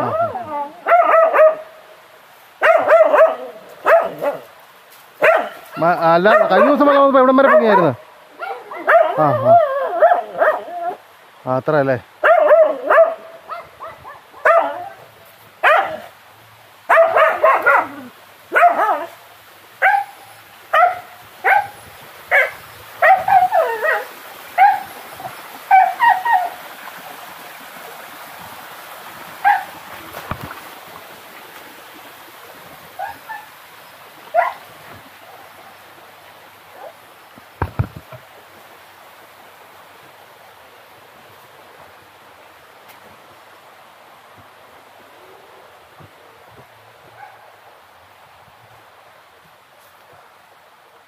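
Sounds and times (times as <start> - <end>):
dog barking: 0.0 - 1.8, 2.6 - 4.5, 5.2 - 6.8, 7.4 - 10.7, 12.2 - 15.0, 15.6 - 16.1, 16.9 - 19.2, 19.8 - 24.9, 25.7 - 26.6, 29.4 - 29.8, 33.0 - 33.5, 34.3 - 34.6, 47.1 - 47.5.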